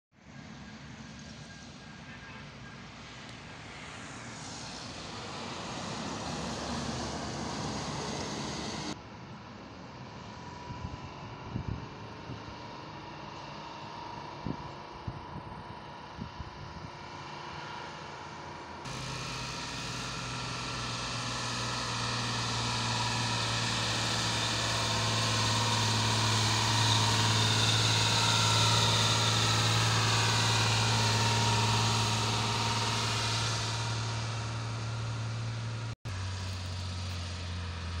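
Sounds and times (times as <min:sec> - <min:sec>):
truck driving past: 0:00.2 - 0:09.2, 0:17.0 - 0:38.0.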